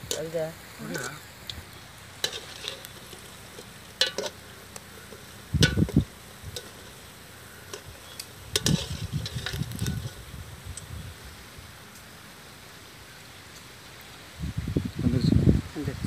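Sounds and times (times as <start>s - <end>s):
hot oil sizzling: 0.0s - 15.5s
skimmer scraping a metal pan: 2.2s - 10.2s.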